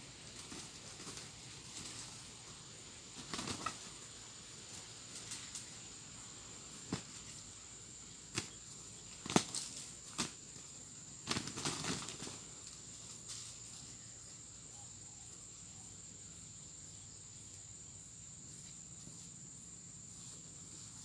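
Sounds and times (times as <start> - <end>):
roosters fighting: 0.0 - 14.0
high insect drone: 0.0 - 21.0
wings flapping: 0.3 - 2.3, 3.1 - 4.1, 4.7 - 5.7, 6.8 - 7.4, 8.3 - 13.6.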